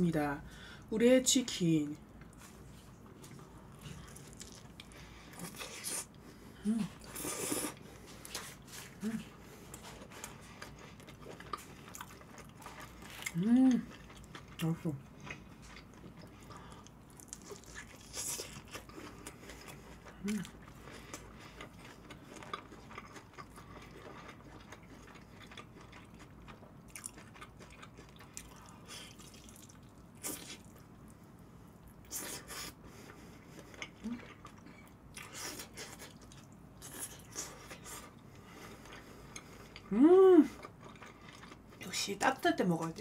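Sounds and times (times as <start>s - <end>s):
person chewing with wet smacks: 2.2s - 6.2s, 6.8s - 31.2s, 31.8s - 42.0s.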